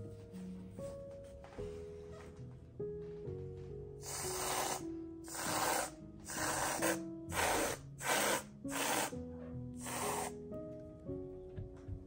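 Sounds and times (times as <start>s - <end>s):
whipped cream can spraying: 4.0s - 9.2s, 9.8s - 10.4s.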